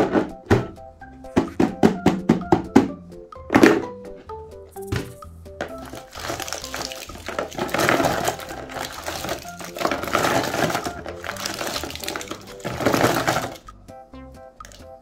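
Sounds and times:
background music: 0:00.0 - 0:15.0
plastic cups clattering: 0:01.3 - 0:02.9, 0:03.5 - 0:03.9, 0:05.0 - 0:13.6.

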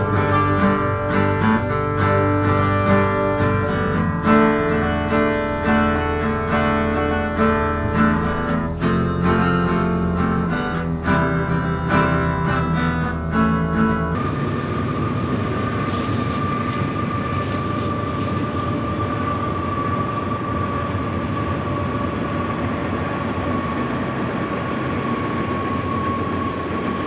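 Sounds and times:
strummed acoustic guitar music: 0:00.0 - 0:14.2
mechanical hum with whine: 0:00.0 - 0:27.0.

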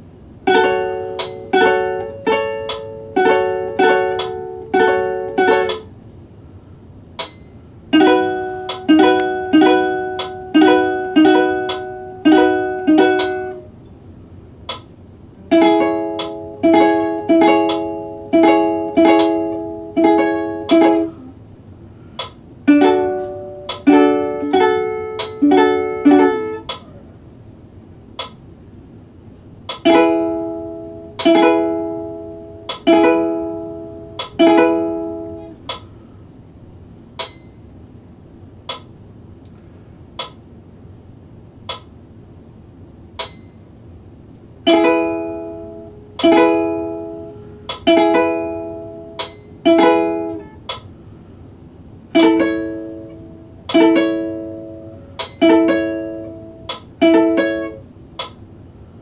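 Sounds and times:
ukulele chords strummed: 0:00.0 - 0:06.0, 0:07.2 - 0:13.8, 0:14.7 - 0:21.3, 0:22.2 - 0:27.0, 0:29.6 - 0:36.0, 0:44.6 - 0:50.9, 0:52.1 - 0:58.4.

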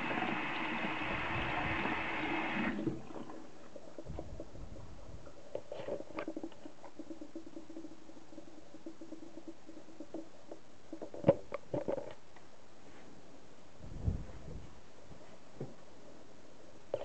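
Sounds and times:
tap water running into sink: 0:00.0 - 0:03.4
low steady hum: 0:00.0 - 0:17.0.

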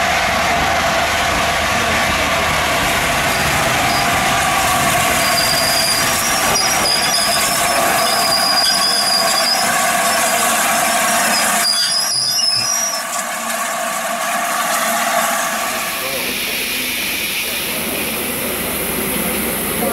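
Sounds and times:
steam locomotive hissing: 0:00.0 - 0:19.9
high thin squealing tones: 0:05.1 - 0:10.5, 0:11.2 - 0:13.2.

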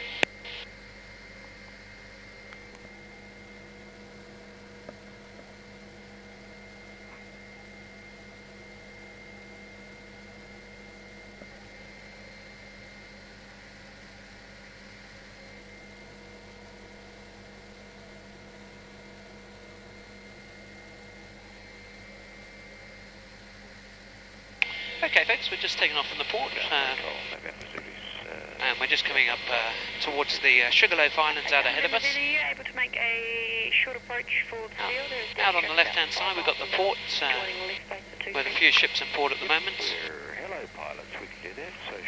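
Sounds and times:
muffled helicopter hum: 0:23.0 - 0:42.0.

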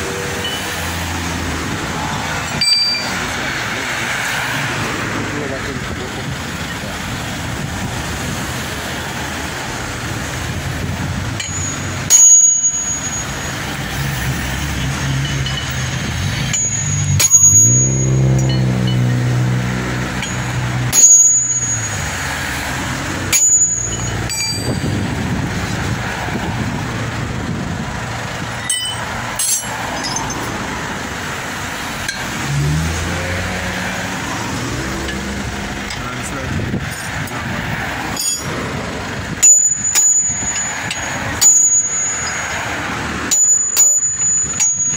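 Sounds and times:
vehicle engine passing: 0:00.0 - 0:12.1, 0:12.8 - 0:43.4
road traffic: 0:00.0 - 0:44.9
hammer striking metal: 0:02.3 - 0:03.4, 0:11.3 - 0:25.0, 0:28.6 - 0:30.5, 0:38.1 - 0:38.6, 0:39.4 - 0:42.6, 0:43.3 - 0:44.9.

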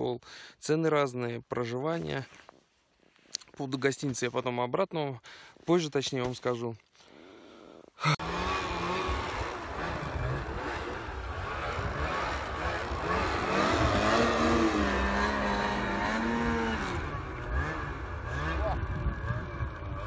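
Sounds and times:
snowmobile engines revving: 0:08.0 - 0:20.0.

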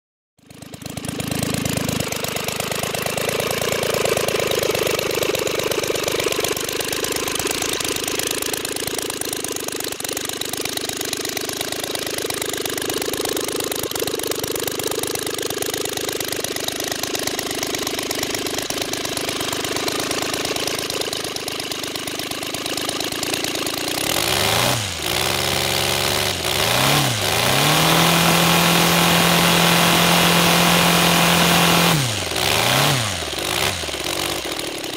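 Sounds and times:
model aircraft engine running: 0:00.4 - 0:34.9.

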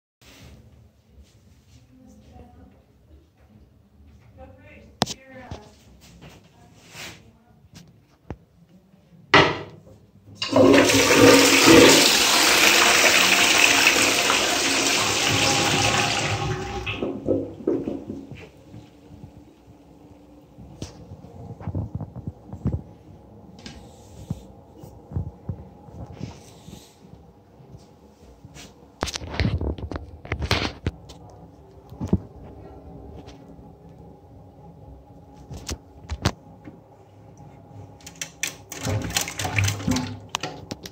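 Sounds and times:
toilet bowl gurgles: 0:10.4 - 0:18.2, 0:38.7 - 0:40.7
toilet flushing: 0:10.4 - 0:19.0, 0:38.5 - 0:40.8
water splashing and clattering: 0:38.1 - 0:40.9.

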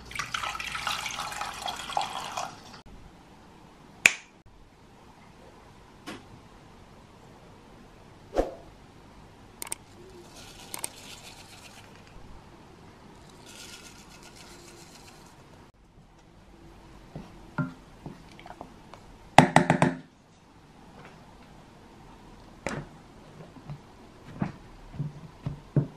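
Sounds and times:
coconut flakes pouring: 0:00.1 - 0:02.7, 0:10.2 - 0:12.1, 0:13.2 - 0:15.4.

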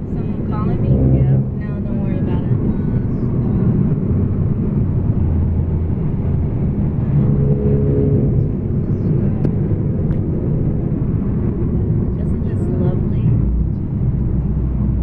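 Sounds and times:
car cabin engine and tyre rumble: 0:00.0 - 0:15.0.

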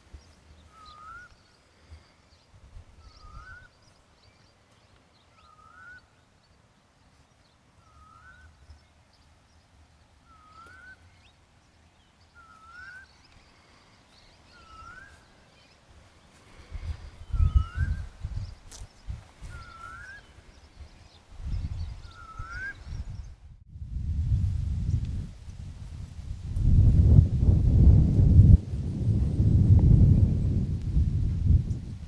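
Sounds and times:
bird whistling: 0:00.7 - 0:01.4, 0:03.0 - 0:03.7, 0:05.4 - 0:06.1, 0:07.8 - 0:08.5, 0:10.2 - 0:11.0, 0:12.4 - 0:13.2, 0:14.5 - 0:15.3, 0:19.5 - 0:20.3, 0:22.0 - 0:22.9.

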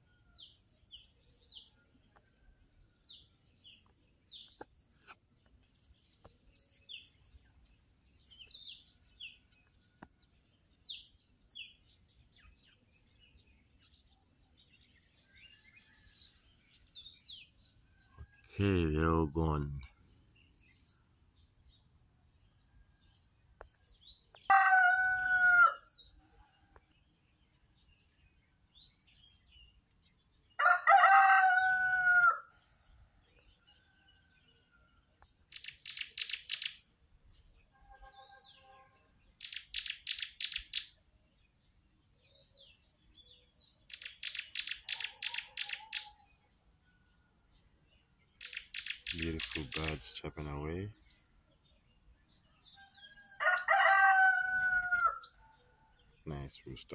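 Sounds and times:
rooster crowing: 0:24.5 - 0:25.9, 0:30.6 - 0:32.5, 0:52.6 - 0:55.6
bird chirping rapidly: 0:35.5 - 0:36.9, 0:39.4 - 0:41.0, 0:43.9 - 0:46.2, 0:48.3 - 0:51.1.

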